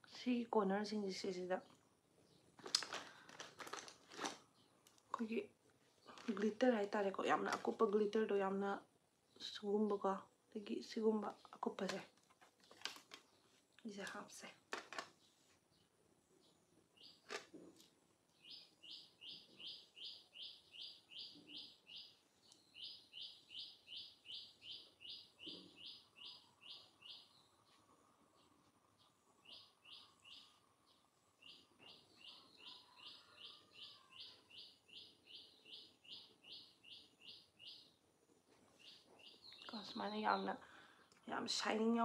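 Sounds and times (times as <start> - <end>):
small bird chirping rapidly: 18.4 - 38.0, 38.8 - 40.6.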